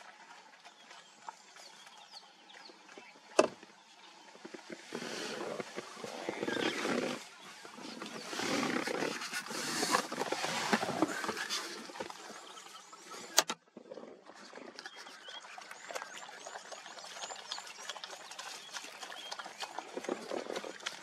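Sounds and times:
wild dogs vocalizing: 4.9 - 13.4.

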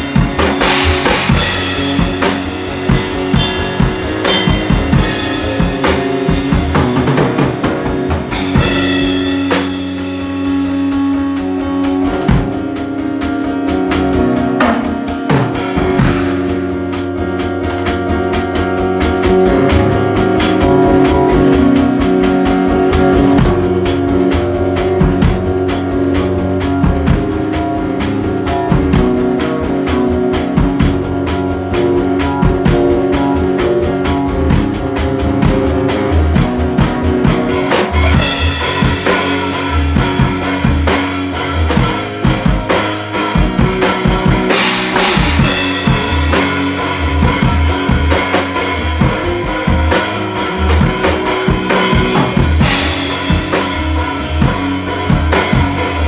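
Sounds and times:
drum beat: 0.0 - 10.7, 14.0 - 17.4, 19.1 - 56.0
electric guitar playing: 0.0 - 56.0.

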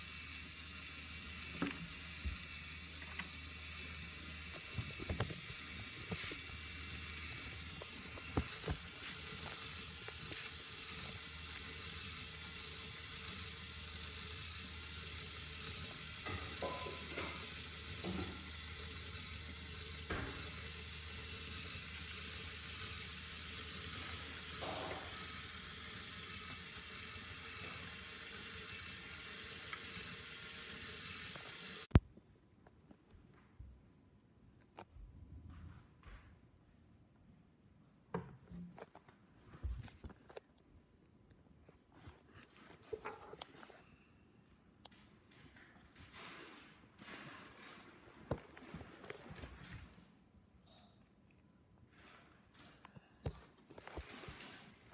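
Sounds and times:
toy motors and gears whirring: 0.0 - 32.0.

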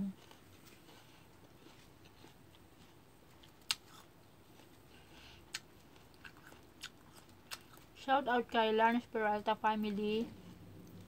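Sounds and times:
chewing crisp fruit crunches: 0.1 - 8.0.

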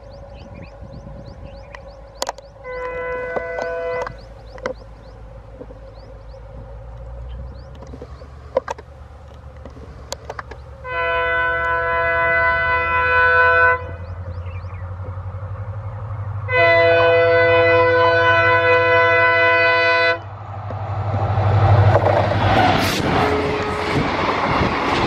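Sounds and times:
locomotive engine rumble: 0.0 - 25.0
locomotive horn blasts: 2.6 - 4.3, 10.8 - 14.0, 16.5 - 20.3, 23.1 - 24.0.

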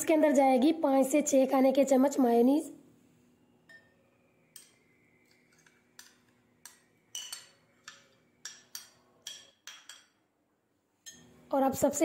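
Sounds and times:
metal spoon clinking against bowls: 3.6 - 10.3, 11.0 - 11.4.

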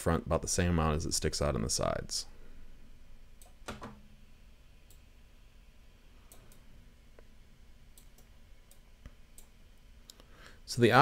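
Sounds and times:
computer mouse clicks: 6.3 - 6.6.

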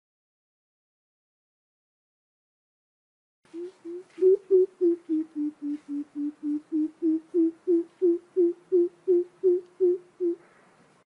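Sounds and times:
bird giving deep hoots: 3.5 - 10.4.

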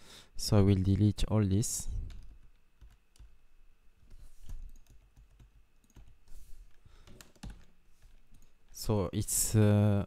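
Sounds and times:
faint keyboard keystrokes: 4.0 - 8.6.

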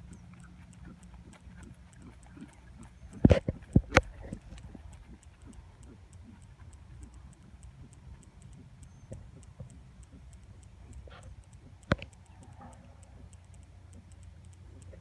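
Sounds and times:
faint high ticking: 0.0 - 15.0
sharp click: 0.0 - 15.0.

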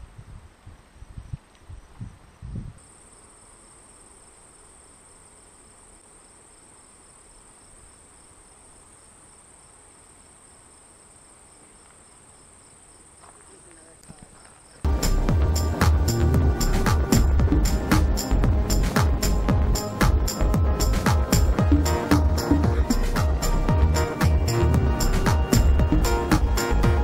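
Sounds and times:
crickets trilling: 1.0 - 15.0.

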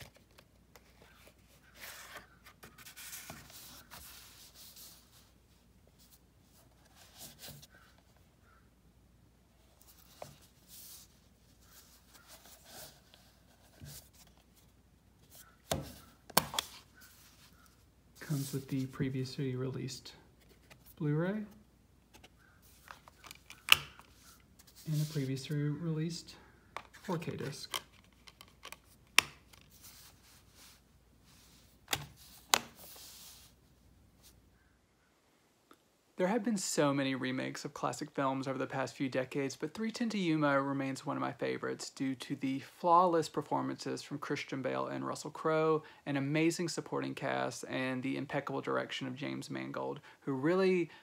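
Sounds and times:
soft rubs and scrapes: 0.0 - 8.2, 9.6 - 19.2, 24.0 - 25.7, 29.5 - 34.4.

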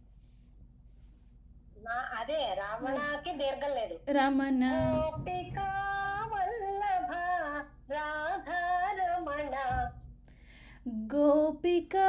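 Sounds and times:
woman singing unaccompanied: 2.8 - 10.1, 10.9 - 12.0
singer breath: 10.3 - 10.9.

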